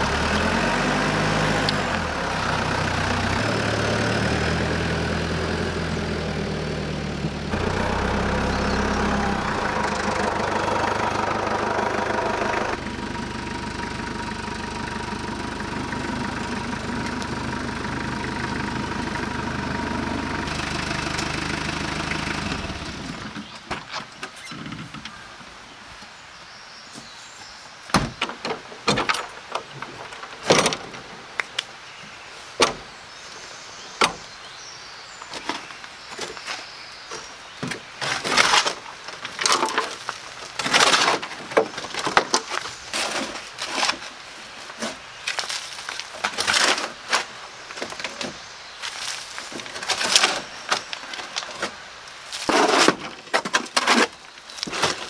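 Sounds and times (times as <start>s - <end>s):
sharp knocks and thuds: 27.9s - 29.2s
shovel scraping soil: 42.5s - 44.1s, 52.3s - 55.0s.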